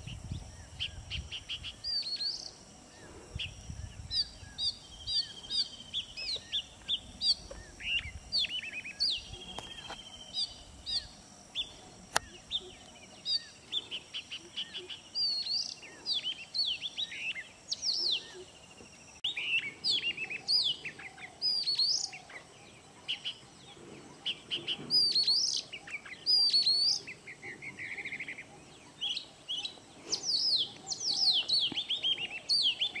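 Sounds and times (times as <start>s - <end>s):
bird singing whistled phrases: 26.2s - 27.1s.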